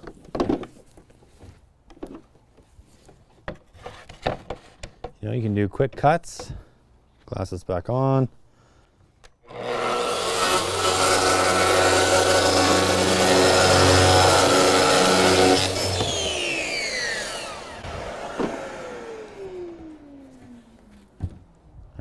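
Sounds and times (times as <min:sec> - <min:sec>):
track saw cutting panel: 0:09.4 - 0:20.5
dust extractor running: 0:09.5 - 0:20.5
saw motor winding down: 0:09.5 - 0:20.5.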